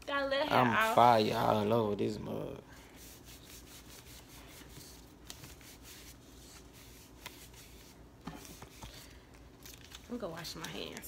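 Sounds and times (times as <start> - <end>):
paper rustling: 3.2 - 11.0.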